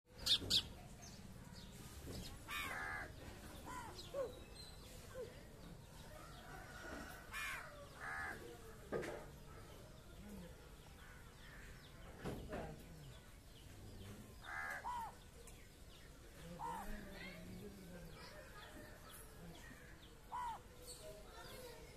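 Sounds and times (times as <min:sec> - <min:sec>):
crows cawing: 0:02.5 - 0:04.0, 0:07.0 - 0:08.4, 0:14.4 - 0:15.2, 0:20.3 - 0:20.6
faint bird calls: 0:14.0 - 0:15.2, 0:19.6 - 0:21.0.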